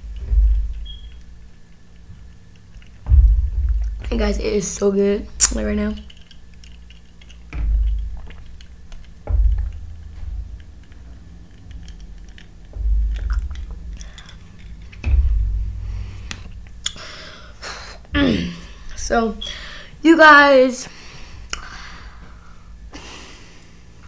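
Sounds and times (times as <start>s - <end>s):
dull low thumps: 0.0s - 20.0s
wet mouth clicks: 16.3s - 17.0s, 21.5s - 21.7s.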